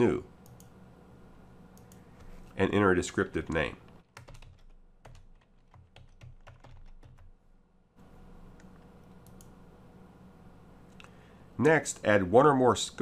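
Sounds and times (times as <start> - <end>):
typing on computer keyboard: 4.0 - 7.3.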